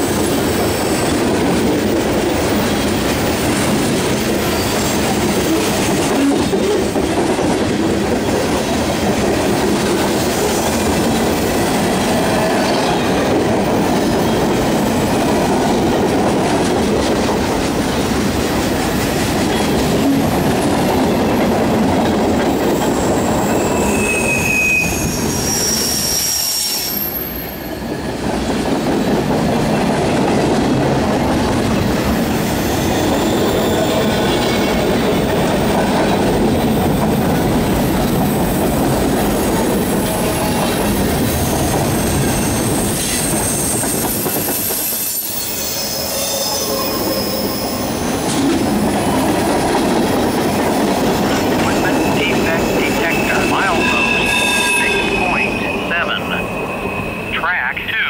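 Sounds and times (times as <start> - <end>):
train wheels rumbling on rail: 0.0 - 57.3
high-pitched wheel squeals: 23.0 - 27.9, 41.9 - 48.1, 53.4 - 57.3.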